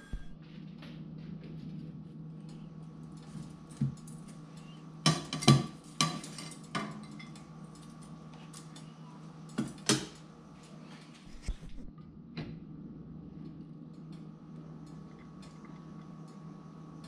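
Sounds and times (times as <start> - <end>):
low steady hum: 0.0 - 17.0
metal tongs clinking on a plate: 4.4 - 8.9.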